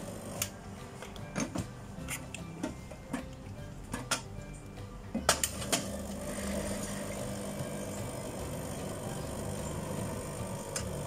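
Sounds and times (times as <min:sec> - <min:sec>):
small motor humming: 0:05.8 - 0:11.0.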